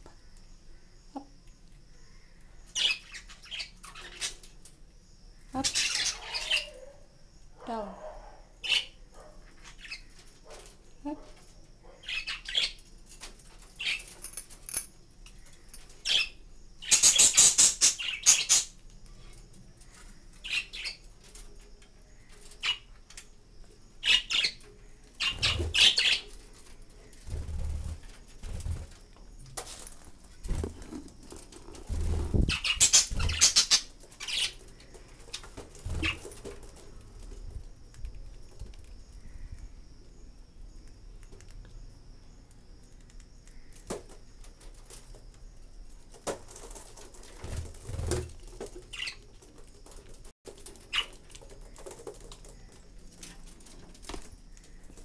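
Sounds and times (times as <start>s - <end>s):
birds flapping wings: 27.2s - 29.0s, 29.6s - 33.6s, 35.3s - 38.2s, 46.2s - 55.0s
budgerigars chirping: 32.5s - 34.6s.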